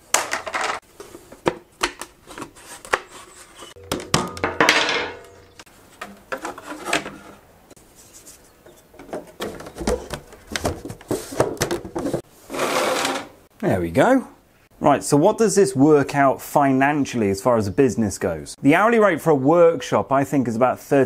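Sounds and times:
plywood pieces clattering: 0.1s - 2.0s, 3.8s - 7.4s.

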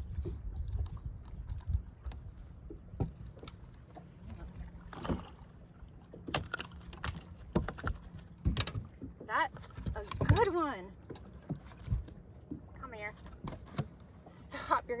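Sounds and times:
low steady hum: 0.0s - 15.0s
fishing gear clicking and rattling: 6.3s - 9.1s.

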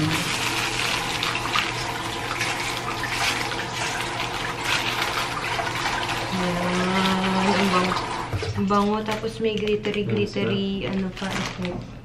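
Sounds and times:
paper wrapping crinkling: 0.0s - 3.8s, 8.8s - 12.0s
water running from a tap: 0.0s - 10.0s.

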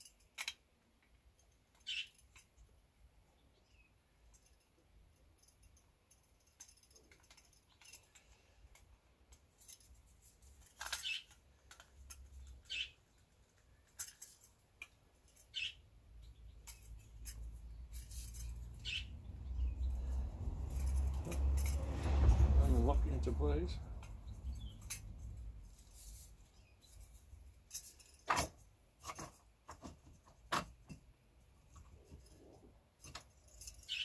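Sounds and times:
small metallic clicks and squeaks: 0.0s - 22.4s, 23.4s - 34.0s
low handling rumble: 18.5s - 25.8s.

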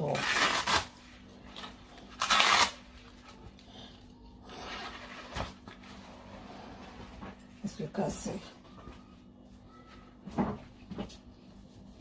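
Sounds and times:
velcro ripping open: 0.0s - 1.0s, 2.1s - 2.9s.

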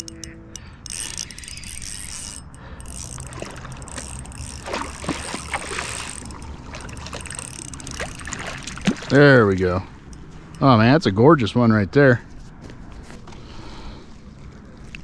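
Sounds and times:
fish splashing in water: 3.0s - 9.3s.

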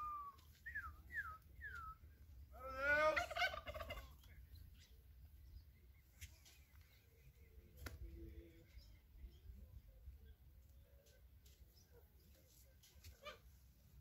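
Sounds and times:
descending whistled bird notes: 0.0s - 2.2s
warbling gobble-like bird call: 2.6s - 4.2s.

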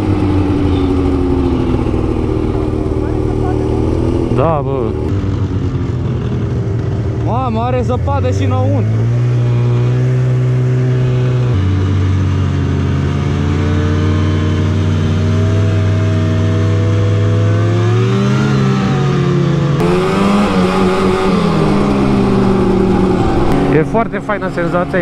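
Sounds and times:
snowmobile two-stroke engine: 0.0s - 25.0s.

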